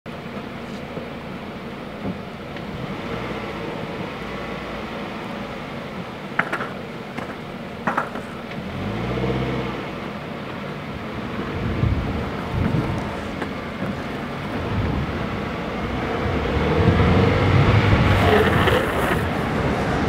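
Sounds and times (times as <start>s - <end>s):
steady outdoor noise: 0.1s - 20.0s
longboard clacking on asphalt: 5.9s - 8.7s, 11.4s - 15.7s, 18.0s - 19.7s
skateboard wheels rolling: 6.0s - 9.0s, 10.5s - 20.0s.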